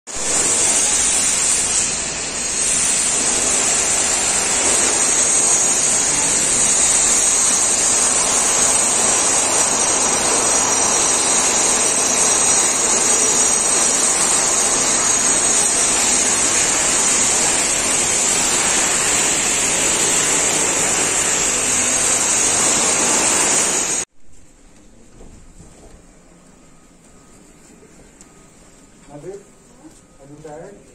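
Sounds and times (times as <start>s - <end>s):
jet engines rushing: 0.4s - 24.1s
high engine whine: 0.5s - 24.1s.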